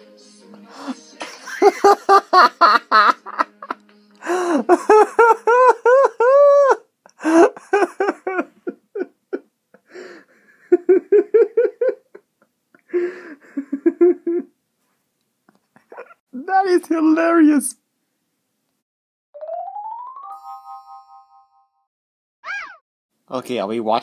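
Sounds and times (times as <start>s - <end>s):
person laughing hard: 1.4s - 14.5s, 15.7s - 16.2s.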